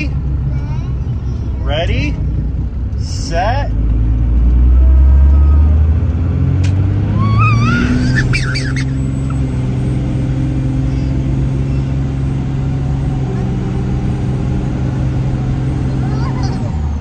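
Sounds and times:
diesel engine droning: 0.0 - 17.0
toddler squealing: 5.3 - 5.8, 7.1 - 9.4, 10.8 - 12.0.

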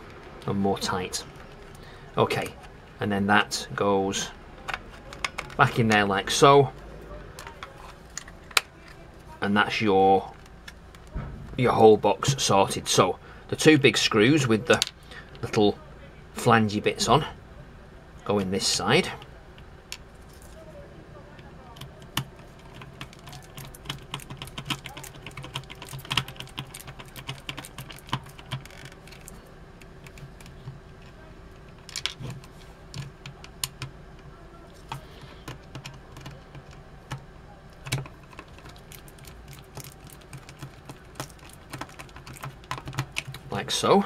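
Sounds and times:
low steady hum: 0.0 - 44.0
screwdriver clicking on plastic: 21.8 - 34.3, 37.8 - 43.5.

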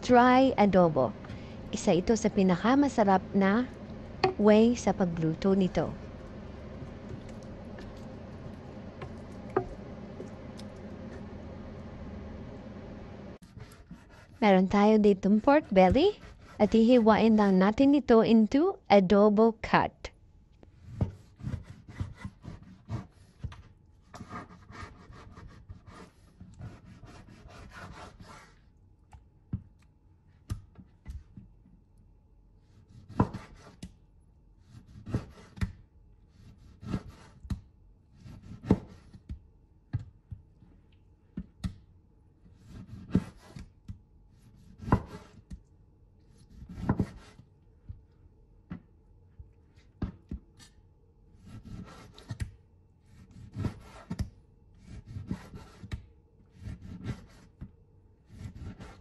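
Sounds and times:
knife sawing through meat: 13.4 - 14.5, 15.5 - 17.0, 24.3 - 28.6.

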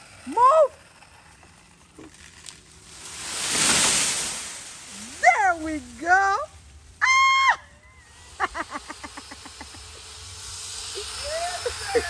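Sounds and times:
tree crashing down: 0.8 - 7.5.

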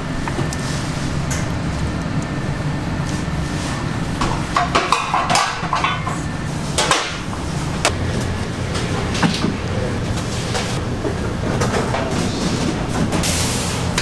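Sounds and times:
low hum of equipment: 0.0 - 14.0
kitchen knocks and clatter: 4.2 - 6.2.

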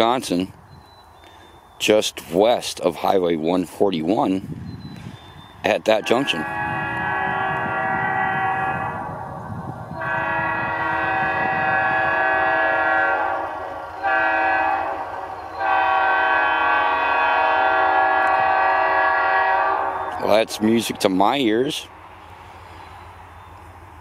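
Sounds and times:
locomotive air horn blasts: 5.9 - 20.4.

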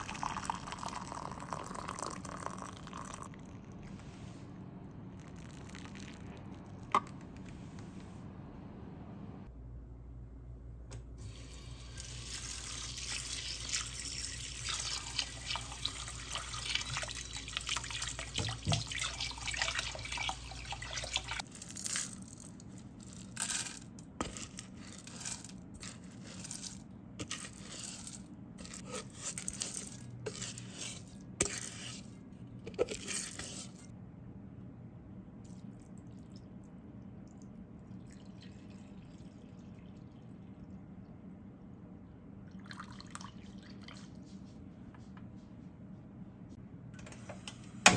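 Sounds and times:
water pouring and splashing: 11.2 - 21.4
water running over rice: 11.4 - 21.4.

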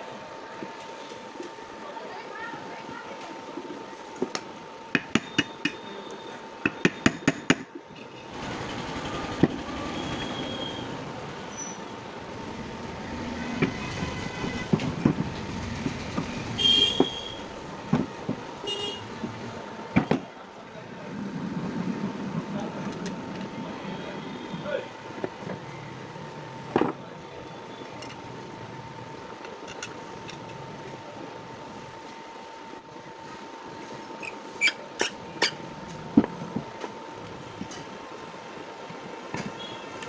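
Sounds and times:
street traffic: 3.9 - 40.0
knocks on metal parts: 6.6 - 7.7
car horn toots: 16.6 - 17.5, 18.6 - 19.1.

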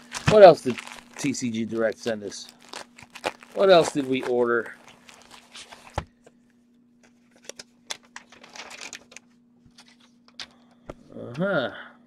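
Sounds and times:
plastic mailer rustling: 0.0 - 6.1, 7.0 - 10.5
faint steady hum: 0.0 - 12.0.

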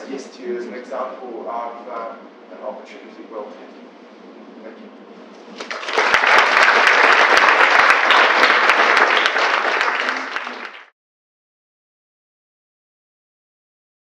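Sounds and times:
audience applauding: 5.6 - 10.9.

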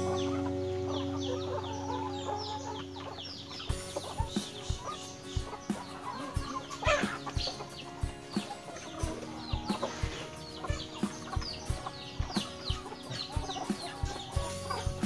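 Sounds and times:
chickens clucking: 0.0 - 15.0
high falling chick peeps: 0.0 - 15.0.

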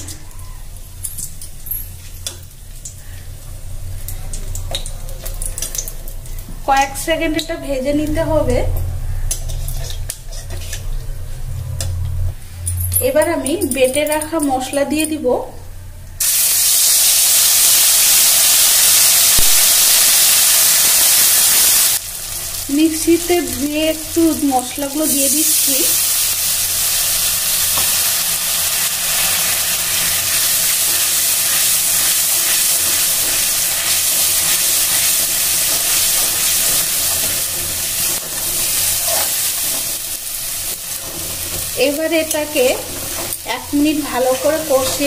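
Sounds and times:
spices sizzling in hot oil: 16.2 - 45.0.

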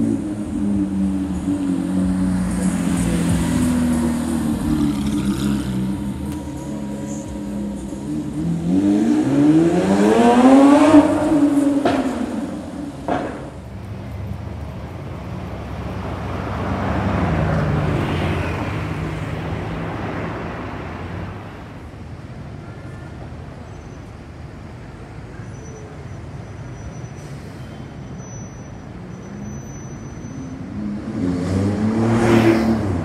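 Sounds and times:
car engine revving: 0.0 - 14.2, 30.7 - 33.0.

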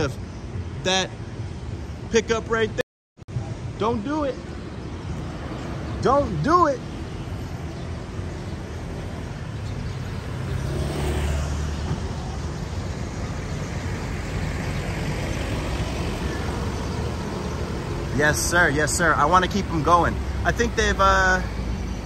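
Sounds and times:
vehicle passing close by: 8.0 - 20.9.

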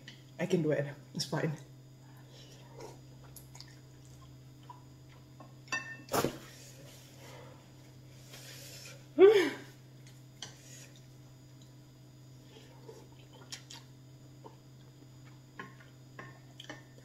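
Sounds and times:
woman crying out: 9.2 - 9.6
woman's wordless vocal reactions: 9.2 - 9.7.

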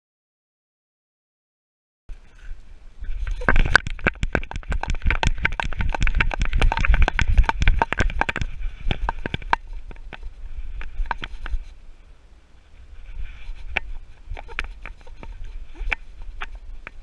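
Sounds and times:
wind rumble: 2.1 - 17.0
camera rattling in housing: 3.2 - 11.7, 13.4 - 17.0.

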